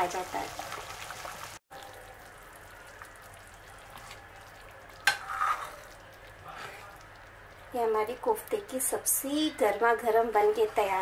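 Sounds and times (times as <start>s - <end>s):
gravy bubbling in a pan: 0.0s - 11.0s.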